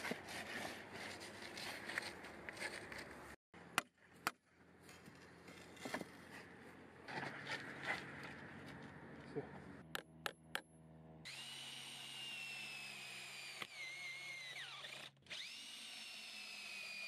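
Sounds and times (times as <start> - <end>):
handling and scraping noise: 0.0 - 3.4, 4.8 - 9.7.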